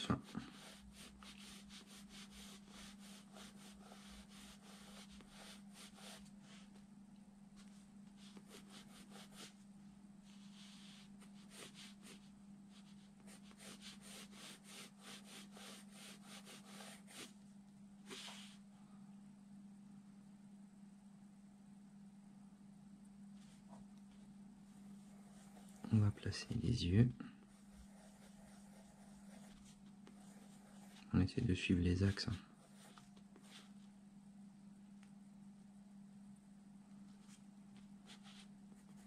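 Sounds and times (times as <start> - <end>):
pencil scratching on paper: 0.0 - 6.6, 8.2 - 9.6, 10.3 - 17.3, 24.8 - 25.9, 27.5 - 31.0, 32.1 - 33.7.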